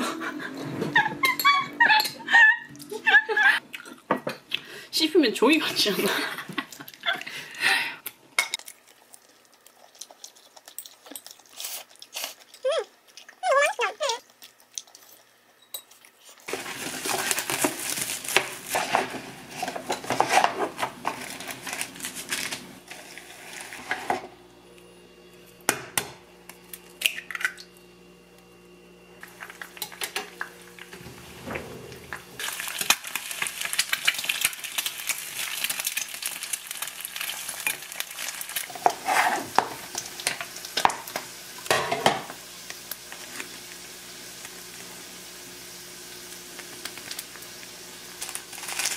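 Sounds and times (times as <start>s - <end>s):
utensils clinking on dishes: 15.6s - 16.0s
food sizzling in frying pan: 16.5s - 24.3s, 32.1s - 48.9s.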